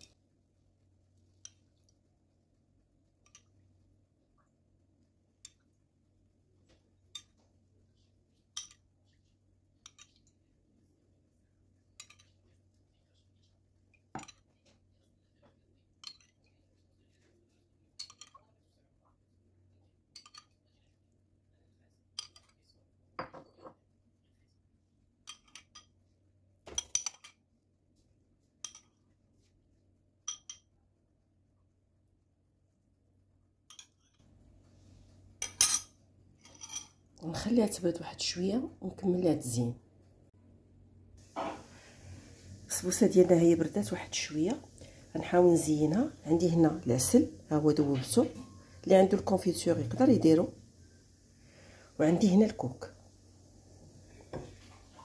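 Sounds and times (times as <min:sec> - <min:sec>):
metal spoon clinking on ceramic bowl: 0:12.0 - 0:12.4, 0:16.0 - 0:16.4, 0:18.0 - 0:18.4, 0:20.1 - 0:20.6, 0:30.3 - 0:30.7, 0:33.7 - 0:34.2.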